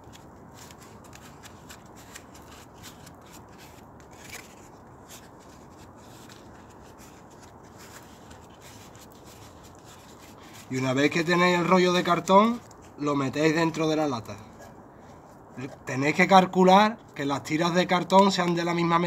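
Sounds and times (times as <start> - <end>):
cardboard rustling and crackling: 0.0 - 13.0.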